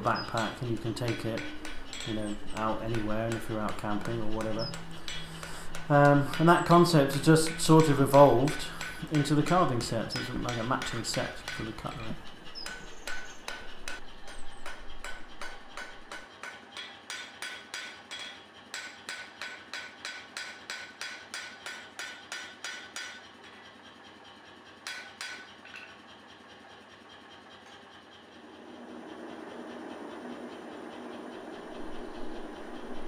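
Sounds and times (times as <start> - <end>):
hammer ringing on anvil: 0.0 - 23.2, 24.8 - 25.9.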